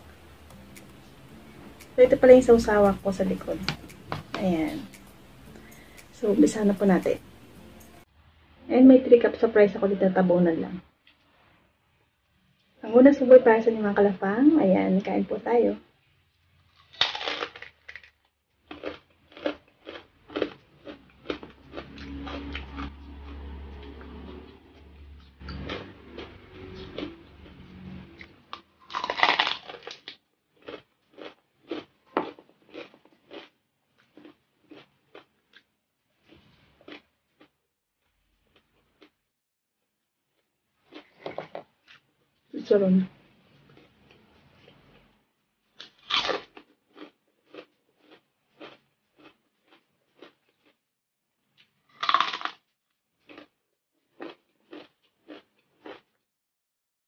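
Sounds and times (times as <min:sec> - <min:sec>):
crunchy chewing: 0:00.0 - 0:07.2, 0:16.3 - 0:37.6, 0:38.3 - 0:39.2, 0:40.3 - 0:42.1, 0:43.4 - 0:45.2, 0:45.8 - 0:50.8, 0:51.5 - 0:56.2
crunching bite into fried pork: 0:16.7 - 0:24.6, 0:25.4 - 0:35.6, 0:45.8 - 0:50.8, 0:51.9 - 0:52.6, 0:53.2 - 0:53.5, 0:54.1 - 0:56.1.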